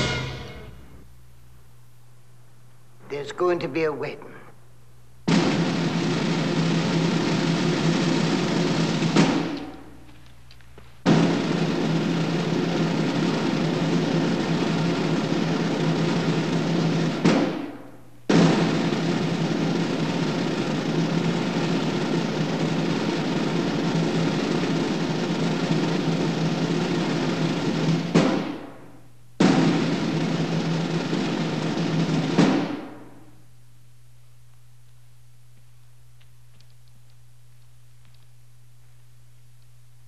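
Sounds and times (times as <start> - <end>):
bagpipes playing: 0.0 - 0.9.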